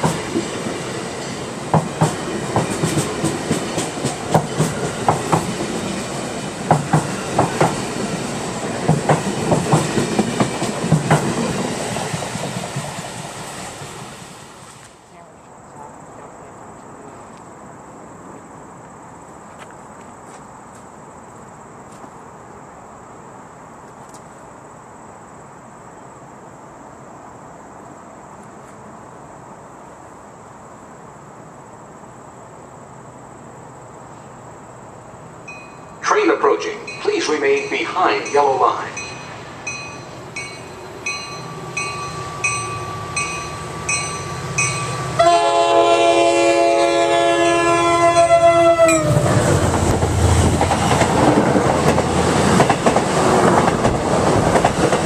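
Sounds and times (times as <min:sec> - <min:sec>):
wheel and rail rumble: 0:00.0 - 0:22.6, 0:33.4 - 0:55.0
outdoor background rumble and hiss: 0:00.0 - 0:37.5
train horn: 0:44.8 - 0:49.4.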